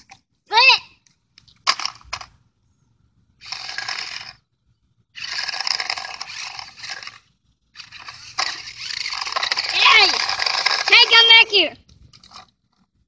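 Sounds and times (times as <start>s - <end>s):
toy car electric motor whirring: 1.7s - 2.3s, 3.4s - 4.4s, 5.2s - 12.8s
wheels on rough asphalt: 3.4s - 13.0s.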